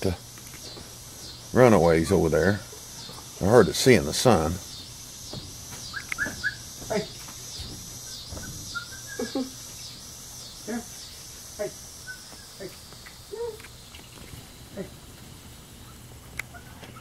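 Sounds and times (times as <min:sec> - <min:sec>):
high pulsing buzz: 0:00.0 - 0:17.0
puppies yipping and whining: 0:04.7 - 0:09.8.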